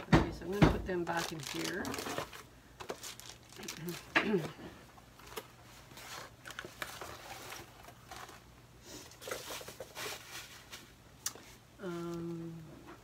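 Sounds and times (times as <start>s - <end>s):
plastic packaging crinkling: 0.6s - 8.5s.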